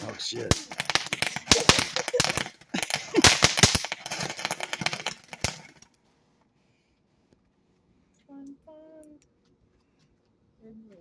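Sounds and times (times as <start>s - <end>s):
firework crackling with sharp pops: 0.0s - 5.9s.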